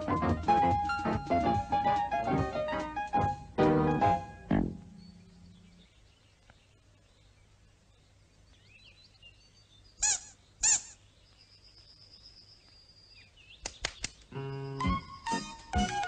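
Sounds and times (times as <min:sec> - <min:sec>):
music: 0:00.0 - 0:05.2, 0:14.3 - 0:16.0
faint birdsong chirps: 0:00.0 - 0:16.0
squeaky pitched calls: 0:10.0 - 0:11.0
sharp clicks: 0:13.6 - 0:14.3.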